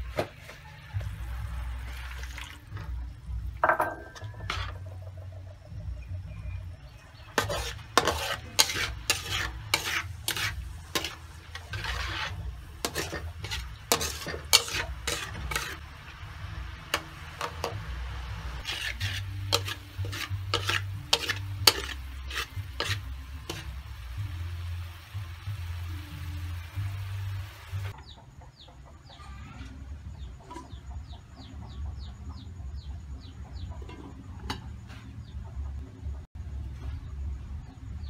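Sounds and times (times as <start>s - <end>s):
sauce sizzling and bubbling: 1.1s - 3.2s, 7.2s - 28.0s
metal ladle scraping a wok: 1.2s - 5.0s, 7.2s - 27.9s, 33.8s - 35.2s.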